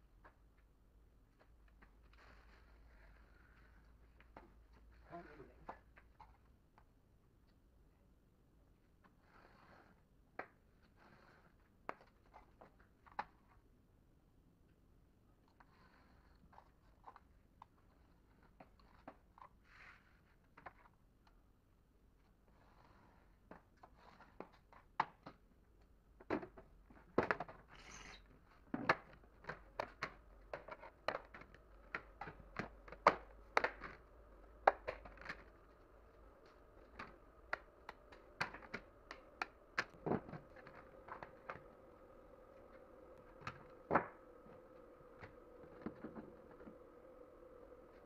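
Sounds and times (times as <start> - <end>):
brief scraping hiss: 27.7 - 28.2.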